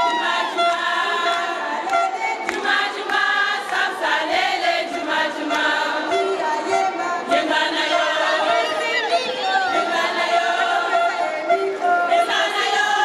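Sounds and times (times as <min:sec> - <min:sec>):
women singing in chorus: 0:00.0 - 0:13.0
hand claps: 0:01.8 - 0:04.5.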